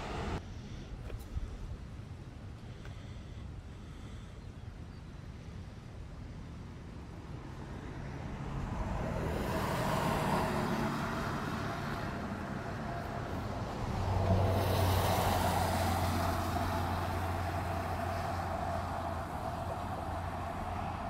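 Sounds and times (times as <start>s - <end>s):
vehicles driving past: 0.0s - 0.4s, 6.9s - 21.0s
low engine hum: 0.0s - 4.2s, 5.2s - 21.0s.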